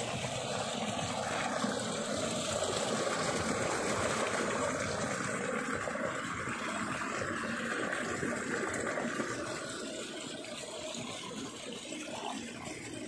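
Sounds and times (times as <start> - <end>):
stream running water: 0.0 - 13.0.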